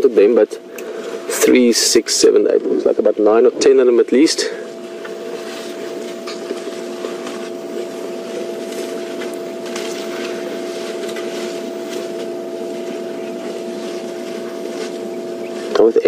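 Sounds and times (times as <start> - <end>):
steady hum: 0.0 - 16.0
branches snapping and leaves rustling: 4.9 - 15.1.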